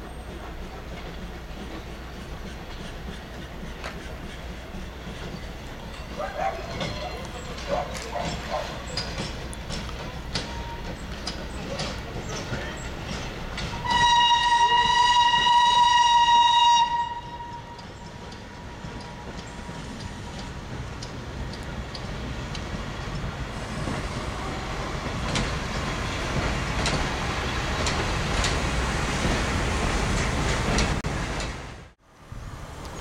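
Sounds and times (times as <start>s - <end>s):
train rumbling: 0.0s - 33.0s
wheels clicking over rail joints: 0.0s - 33.0s
steam locomotive whistle: 13.7s - 19.5s.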